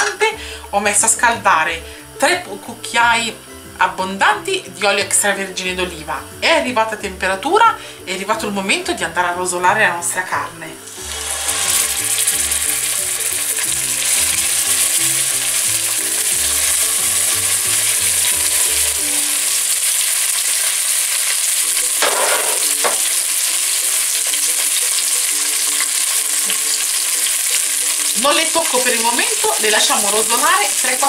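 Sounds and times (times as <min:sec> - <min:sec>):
meat sizzling in oil: 0:10.0 - 0:31.0.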